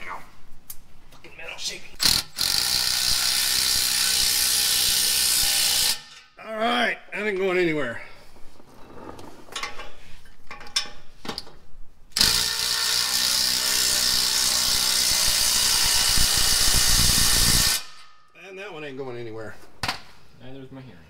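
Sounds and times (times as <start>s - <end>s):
impact wrench hammering: 2.0s - 6.3s, 12.2s - 18.2s.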